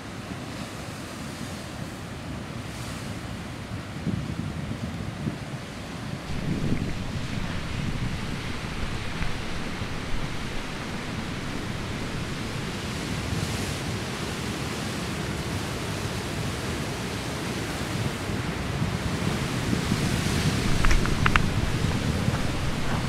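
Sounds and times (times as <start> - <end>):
wind buffeting microphone: 4.0 - 13.6, 18.0 - 23.0.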